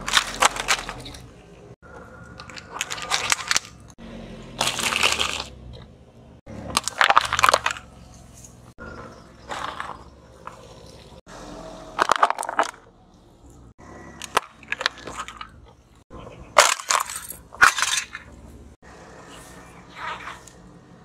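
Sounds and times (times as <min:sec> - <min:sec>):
glass and plastic breaking: 0:00.0 - 0:01.3, 0:02.4 - 0:03.9, 0:04.6 - 0:05.5, 0:06.7 - 0:08.6, 0:12.0 - 0:12.8, 0:16.6 - 0:18.3
tyre crushing brittle objects: 0:00.0 - 0:01.4, 0:02.3 - 0:05.7, 0:06.5 - 0:10.9, 0:11.9 - 0:12.9, 0:16.6 - 0:18.3.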